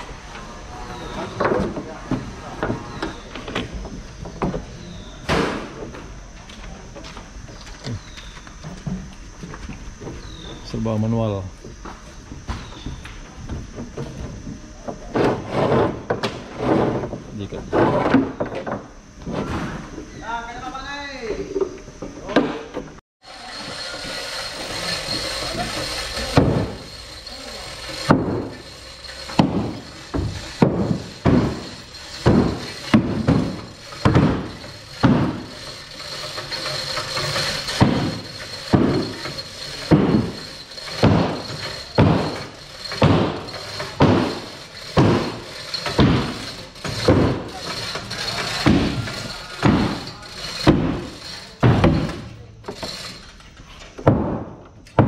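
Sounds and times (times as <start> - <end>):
heavy hammer blows ringing: 23.6 - 52.1.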